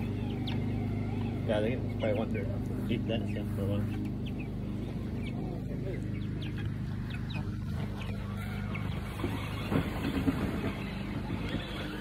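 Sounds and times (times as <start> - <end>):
chicks peeping: 0.0 - 12.0
low machine hum: 0.0 - 12.0.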